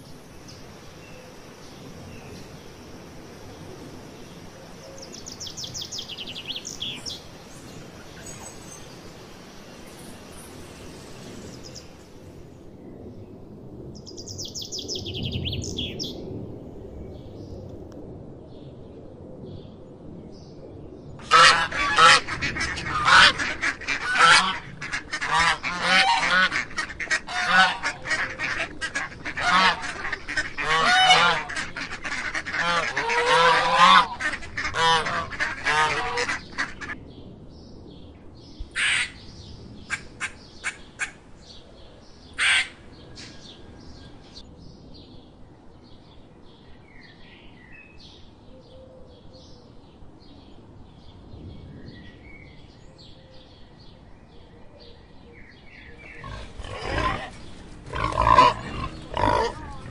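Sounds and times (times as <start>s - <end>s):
flamingos honking: 21.2s - 37.0s, 56.2s - 59.9s.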